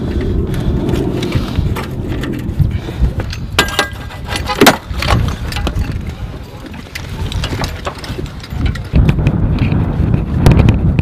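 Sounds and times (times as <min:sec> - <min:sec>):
low engine rumble: 0:00.0 - 0:04.2
metal hose couplings clanking: 0:03.2 - 0:09.0.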